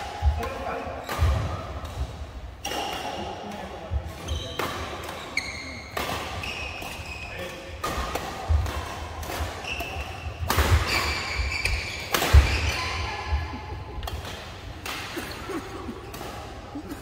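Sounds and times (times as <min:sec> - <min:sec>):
rackets striking shuttlecock: 0:00.0 - 0:16.7
shoes squeaking on court: 0:04.2 - 0:07.6, 0:09.6 - 0:13.4.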